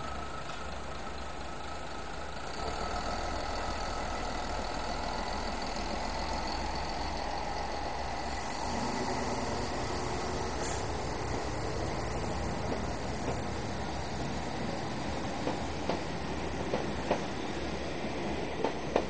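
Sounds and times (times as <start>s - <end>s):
diesel train engine running: 0.0s - 19.0s.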